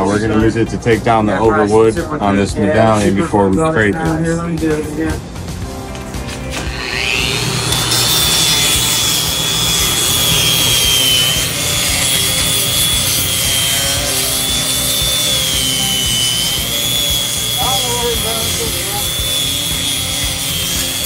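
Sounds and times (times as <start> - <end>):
disc rasping on wood: 6.4 - 21.0
grinder motor whine: 6.4 - 21.0.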